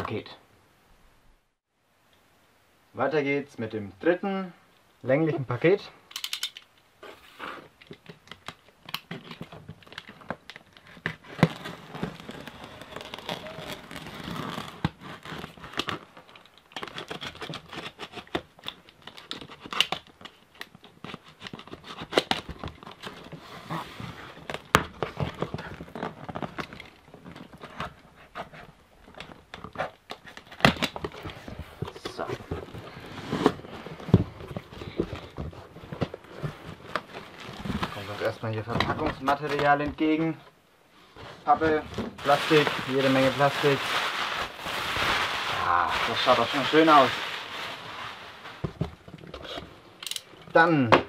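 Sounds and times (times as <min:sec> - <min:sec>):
packing tape tearing: 0:07.3 - 0:28.0, 0:42.2 - 0:48.6
cardboard flaps rustling: 0:20.8 - 0:40.4, 0:41.2 - 0:49.7.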